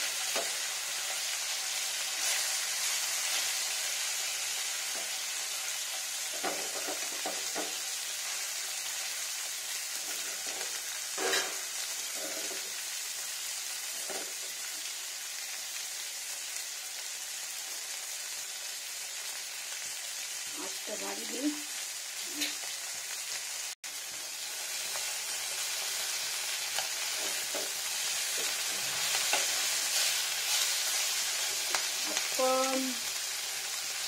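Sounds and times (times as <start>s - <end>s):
fish sizzling in oil: 0.0s - 34.0s
metal spatula scraping a pan: 10.1s - 12.6s, 27.0s - 31.7s.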